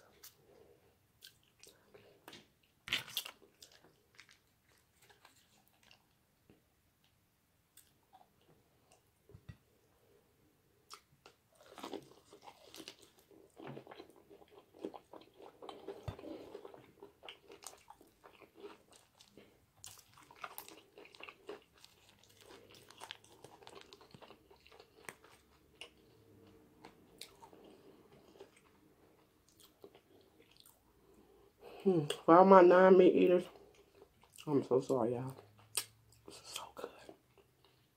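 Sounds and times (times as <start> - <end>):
crunchy chewing: 1.2 - 6.2, 10.9 - 30.8.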